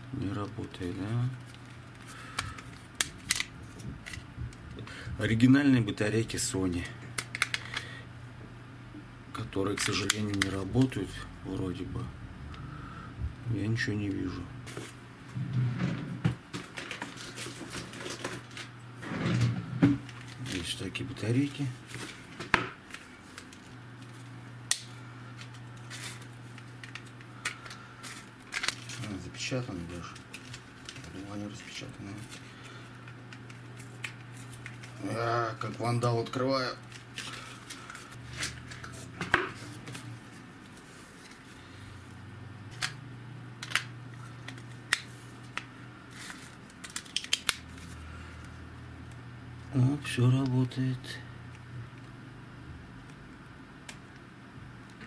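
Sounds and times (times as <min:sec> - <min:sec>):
steady low hum: 0:00.0 - 0:55.0
plastic items handled in a box: 0:16.6 - 0:18.8, 0:25.4 - 0:32.5, 0:43.6 - 0:48.6.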